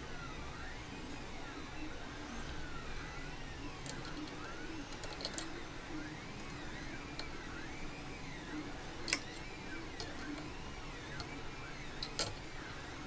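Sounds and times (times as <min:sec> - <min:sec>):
stepper motors whining: 0:00.0 - 0:13.0.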